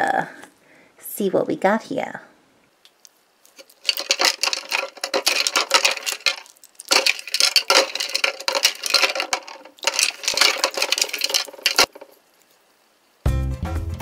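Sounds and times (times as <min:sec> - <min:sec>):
rocks swished in water in glass bowl: 0:03.4 - 0:12.3.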